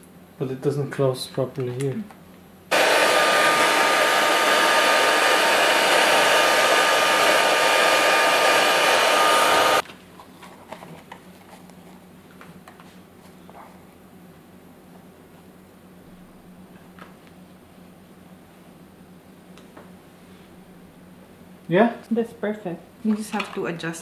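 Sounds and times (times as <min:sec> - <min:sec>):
hair dryer blowing: 0:02.7 - 0:09.8.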